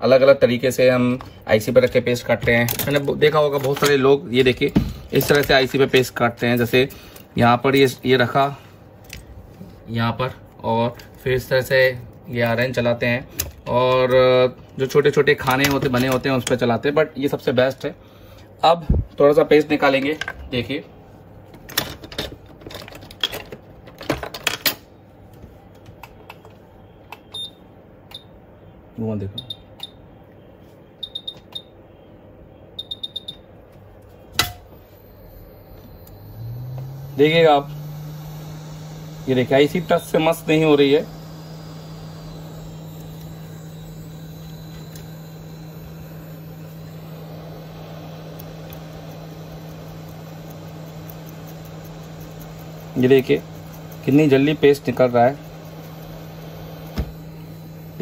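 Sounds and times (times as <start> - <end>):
low steady hum: 34.0 - 58.0
hot air gun hissing: 37.0 - 58.0.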